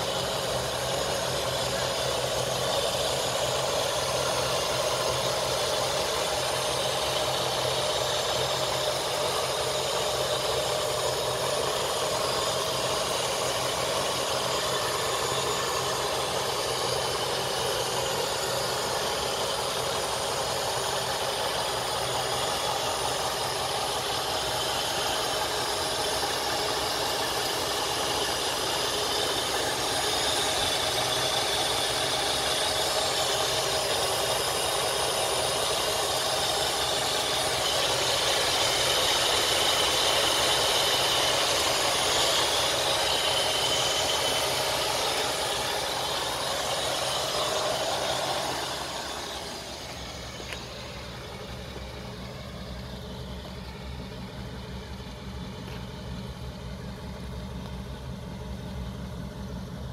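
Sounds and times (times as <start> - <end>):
car engine idling: 0.0 - 59.9.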